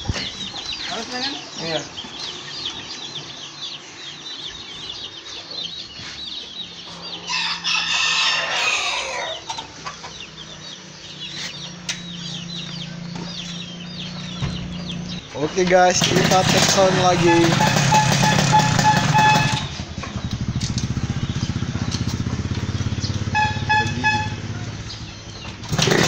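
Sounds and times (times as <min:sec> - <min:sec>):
chickens clucking: 0:00.0 - 0:26.0
chicks peeping: 0:00.0 - 0:26.0
rooster crowing: 0:07.2 - 0:09.6.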